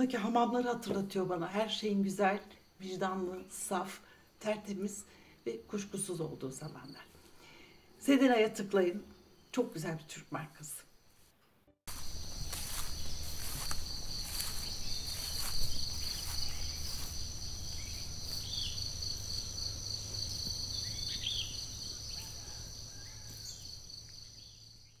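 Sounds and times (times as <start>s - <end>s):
insect trilling: 11.9s - 24.8s
bird chirps: 17.7s - 19.5s, 20.1s - 25.0s.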